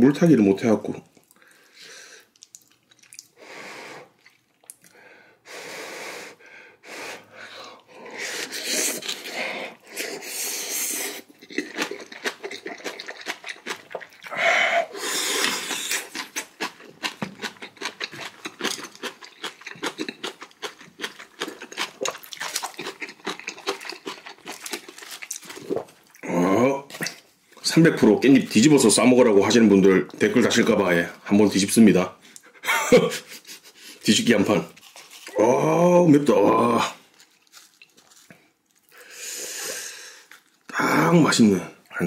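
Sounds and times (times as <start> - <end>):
sharp breaths in and out: 1.4 - 2.4, 3.4 - 4.2, 4.8 - 11.3, 14.3 - 16.1, 38.9 - 40.4
wet chewing and mouth clicks: 2.2 - 3.4, 4.2 - 5.0, 7.8 - 14.4, 15.0 - 26.2, 37.1 - 40.7.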